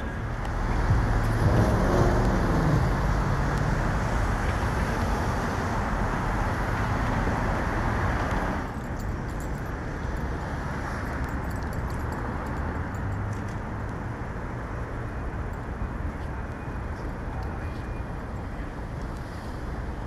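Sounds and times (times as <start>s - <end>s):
passing cars rushing: 0.0s - 15.3s.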